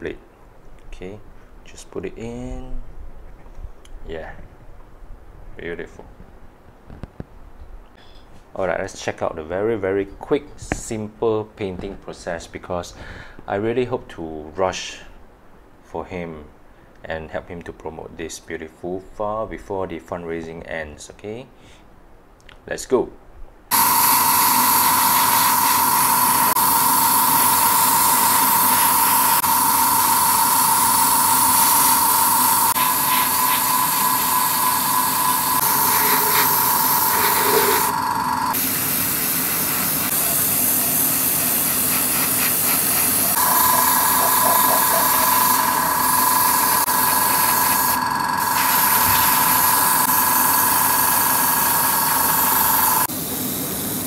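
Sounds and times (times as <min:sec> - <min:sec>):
airbrush spraying hiss: 0:23.7 - 0:54.0.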